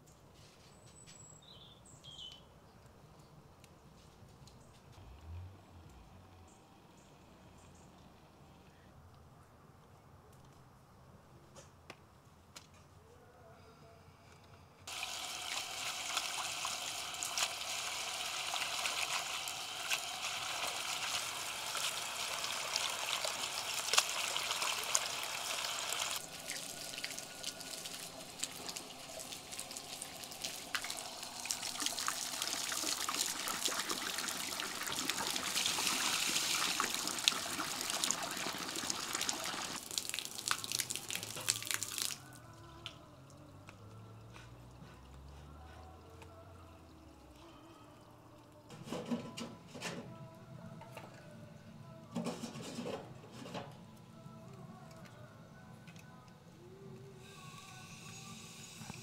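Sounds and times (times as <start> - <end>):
tap water running into bowl: 14.9 - 42.1.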